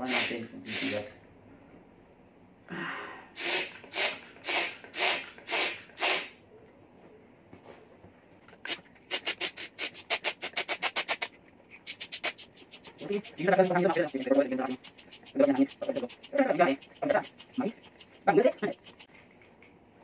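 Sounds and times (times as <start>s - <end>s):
hand pump hissing strokes: 0.0s - 1.1s, 3.4s - 6.4s, 8.7s - 19.1s.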